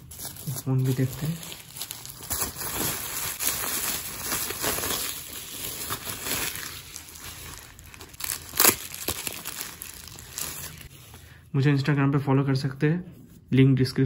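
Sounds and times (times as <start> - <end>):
bubble wrap crinkling and crackling: 0.0 - 11.2.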